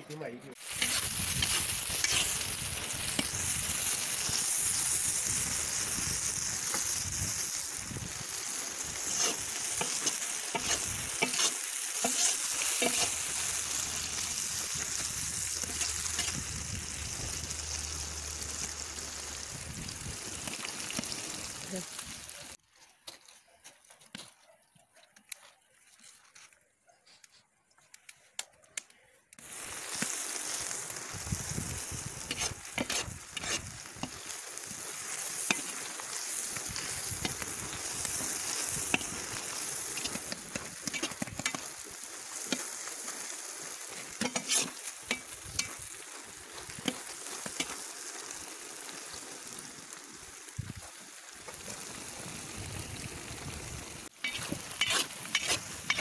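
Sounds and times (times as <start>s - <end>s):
onions sizzling in hot oil: 0.5s - 22.6s, 29.4s - 56.0s
stirring clicks and scrapes: 0.7s - 2.4s, 9.0s - 13.3s, 23.0s - 26.6s, 32.2s - 34.3s, 36.5s - 41.8s, 42.4s - 42.7s, 43.9s - 45.8s, 46.6s - 47.8s, 54.1s - 56.0s.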